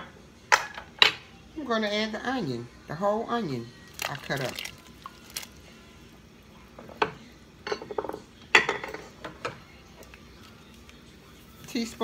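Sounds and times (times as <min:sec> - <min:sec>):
kitchenware clinking: 0:00.0 - 0:01.3, 0:06.8 - 0:09.7.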